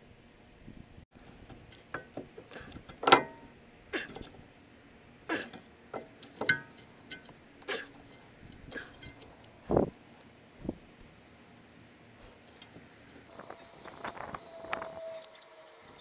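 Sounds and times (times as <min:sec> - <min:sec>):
metal tool clinking on brake caliper: 0:02.7 - 0:03.5, 0:06.0 - 0:07.3, 0:07.9 - 0:09.3.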